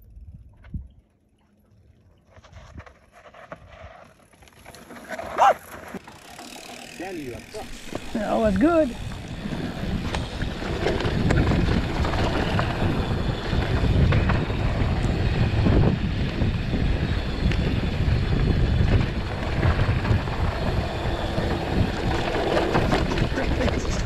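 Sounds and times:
bike rattling over bumps: 2.3s - 24.0s
wind buffeting microphone: 7.6s - 24.0s.

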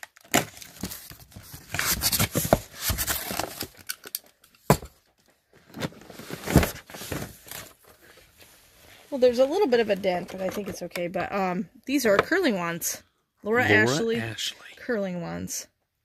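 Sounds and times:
cardboard scraping and rustling: 0.4s - 3.8s, 5.6s - 10.8s.

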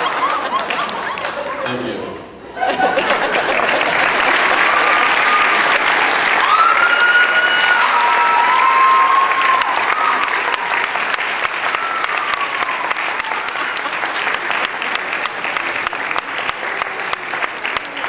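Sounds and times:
audience clapping: 0.0s - 2.3s, 3.0s - 18.0s
crowd calling out: 4.3s - 15.5s.

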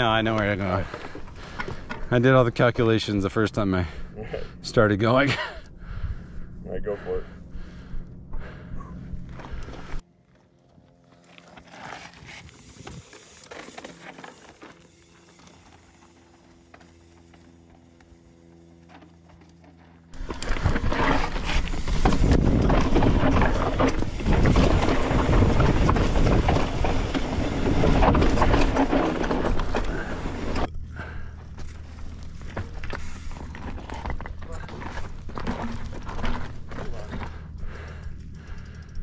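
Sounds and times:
bike tyres rattling over rock: 11.1s - 39.0s.

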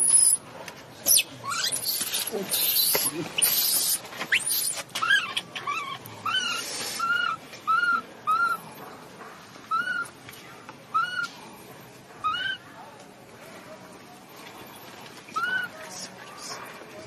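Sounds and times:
infant monkey cooing: 1.1s - 8.6s, 10.9s - 11.3s, 12.2s - 12.6s, 15.4s - 15.7s.

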